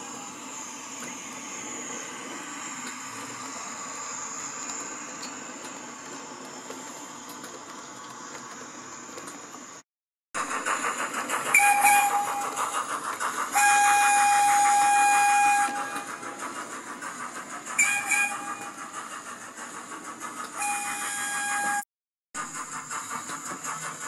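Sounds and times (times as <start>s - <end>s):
model train running: 0.0s - 9.8s, 10.4s - 21.8s, 22.4s - 24.0s
model train horn: 13.6s - 16.0s, 20.6s - 21.8s.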